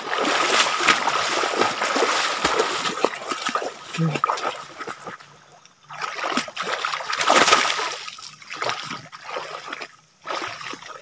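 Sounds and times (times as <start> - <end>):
water splashing: 0.0 - 11.0.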